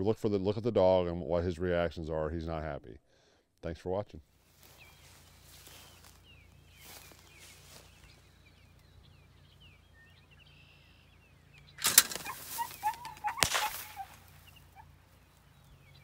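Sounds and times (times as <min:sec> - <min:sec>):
songbird chirping: 0:04.4 - 0:16.0
bird release snapping open: 0:11.6 - 0:14.3
wings flapping: 0:11.8 - 0:14.9.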